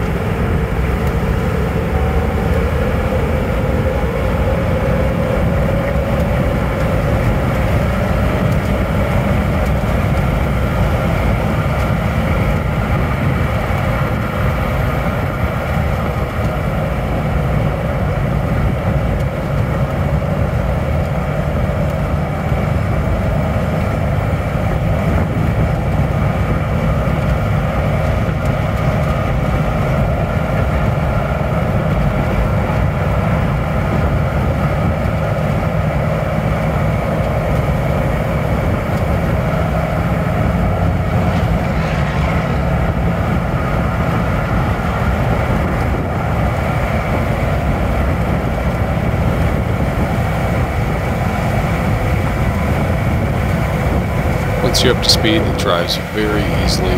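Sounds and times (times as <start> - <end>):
diesel engine cruising: 0.0 - 56.9
road and tyre noise: 0.0 - 56.9.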